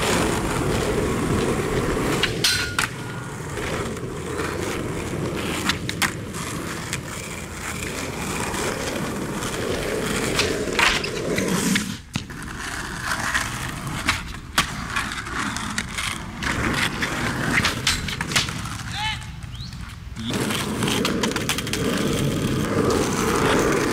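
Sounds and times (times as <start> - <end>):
skateboard slapping pavement: 0.0 - 23.9
skateboard tail popping: 0.0 - 23.9
skateboard wheels rolling on asphalt: 0.0 - 23.9.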